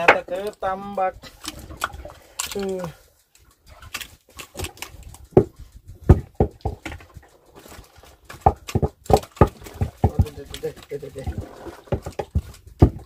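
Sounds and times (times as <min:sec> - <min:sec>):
sharp knocks and thumps: 0:03.7 - 0:13.0.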